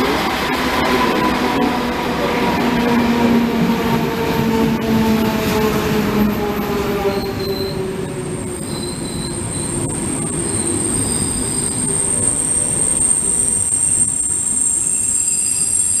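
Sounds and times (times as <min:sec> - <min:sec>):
train coaches rumbling: 0:00.0 - 0:16.0
high-pitched wheel squeal: 0:07.1 - 0:07.8, 0:08.4 - 0:16.0.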